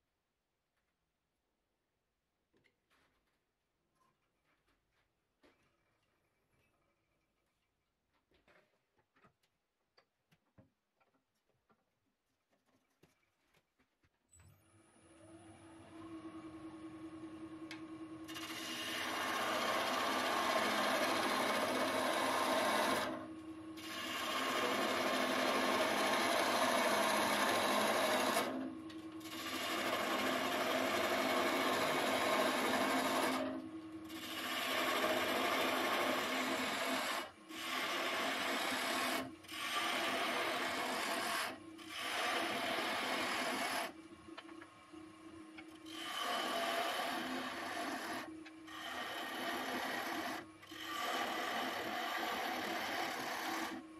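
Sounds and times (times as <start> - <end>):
wood lathe motor humming: 15.2 - 53.9
gouge cutting spinning wood: 15.8 - 53.9.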